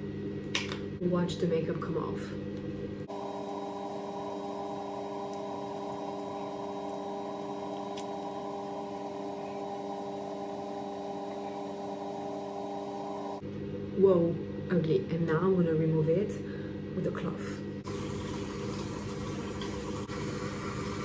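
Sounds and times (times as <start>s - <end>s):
hum of held tones: 2.2s - 14.8s.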